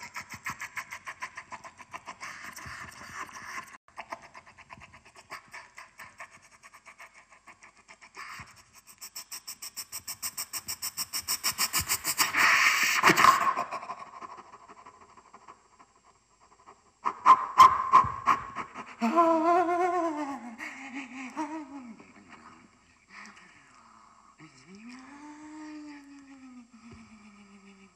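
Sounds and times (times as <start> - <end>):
rhythmic breathy vocal pulses: 0.0 - 17.2.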